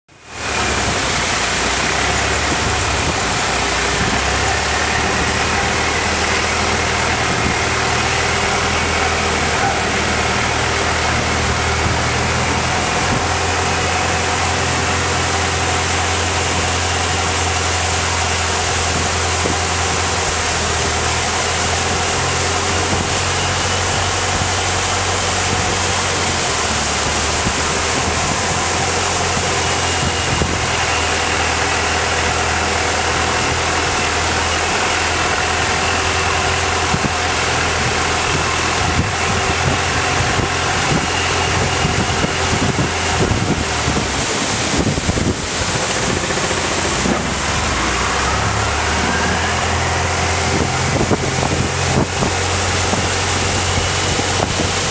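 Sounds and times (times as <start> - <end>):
boat engine drone: 0.1 - 54.9.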